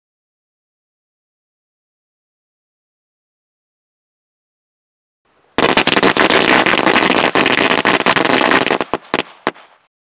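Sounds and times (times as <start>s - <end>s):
firecrackers cracking: 5.6s - 9.9s.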